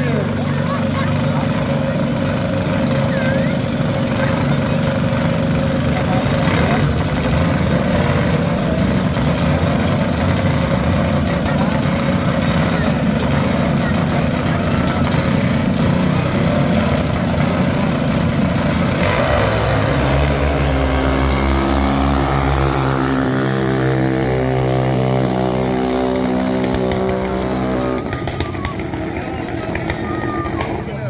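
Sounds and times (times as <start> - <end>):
small engine high-pitched buzz: 18.8 - 31.0.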